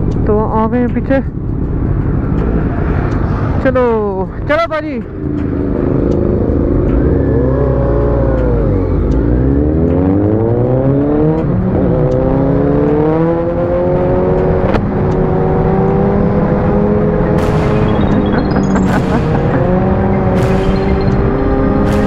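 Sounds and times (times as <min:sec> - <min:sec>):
motorcycle engine accelerating: 0:05.1 - 0:22.0.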